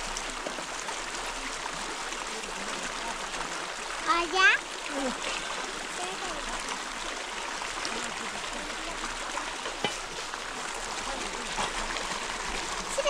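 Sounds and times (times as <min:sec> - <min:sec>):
stream rushing over rocks: 0:00.0 - 0:13.0.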